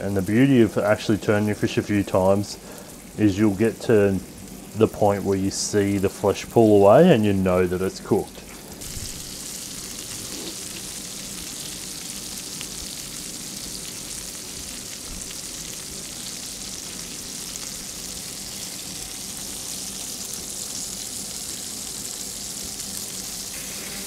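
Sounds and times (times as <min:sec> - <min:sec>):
fish sizzling in a pan: 0:00.0 - 0:04.9, 0:08.7 - 0:24.0.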